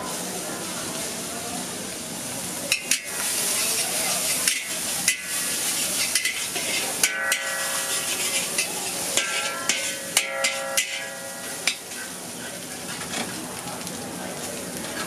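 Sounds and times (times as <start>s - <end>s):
noodles sizzling in a wok: 0.0s - 15.0s
metal spatula scraping a pan: 2.7s - 13.3s.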